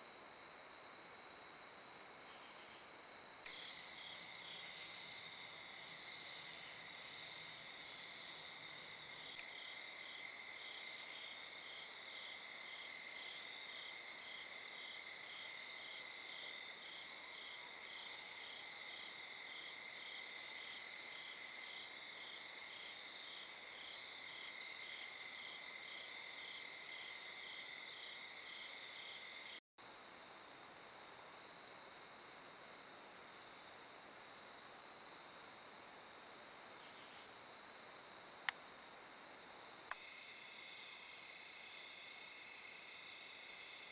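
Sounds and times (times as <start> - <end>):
faint hiss: 0.0 - 12.6, 29.8 - 43.9
crickets trilling: 2.2 - 29.6, 39.9 - 43.9.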